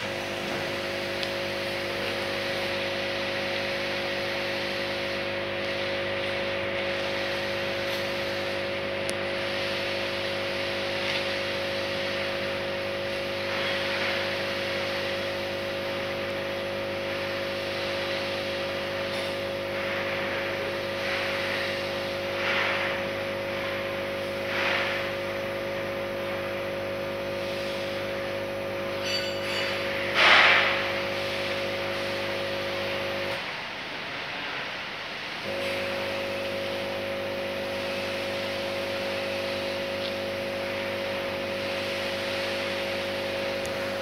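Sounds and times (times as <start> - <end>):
sampling pump humming: 0.0 - 33.4, 35.4 - 44.0
hiss: 9.3 - 10.7, 24.4 - 25.2, 27.2 - 28.2, 29.4 - 32.2.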